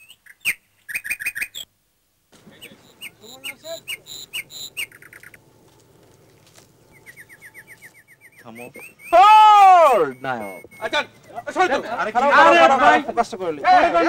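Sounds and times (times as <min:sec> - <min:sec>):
small birds chirping: 0:00.0 - 0:01.7, 0:02.4 - 0:13.6
faint low outdoor hum: 0:00.0 - 0:14.0.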